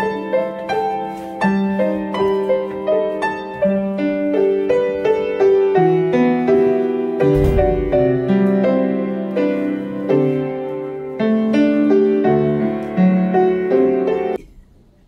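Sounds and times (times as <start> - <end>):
upright piano playing chords: 0.0 - 14.4
low thump: 7.3 - 8.4.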